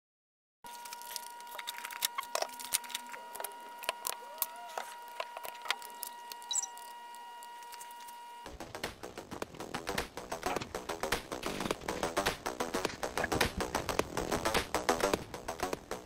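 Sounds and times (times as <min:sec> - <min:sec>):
plastic connectors clicking and rattling: 0:00.7 - 0:08.0
high electronic whine: 0:00.7 - 0:10.7
music: 0:08.5 - 0:16.0.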